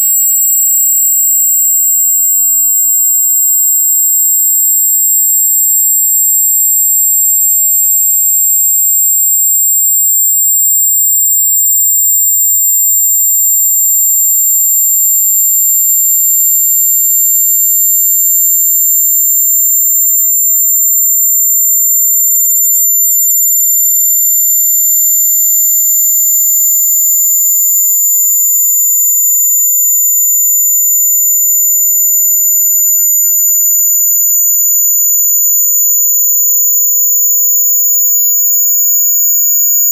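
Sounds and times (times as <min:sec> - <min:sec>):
high-pitched electronic test tone: 0:00.0 - 0:39.9
very high electronic test tone: 0:00.0 - 0:39.9.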